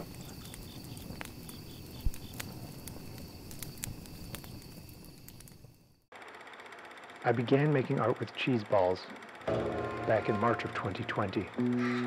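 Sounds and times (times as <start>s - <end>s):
wood fire crackling and popping: 0.0s - 6.1s
crickets chirping: 0.0s - 7.0s.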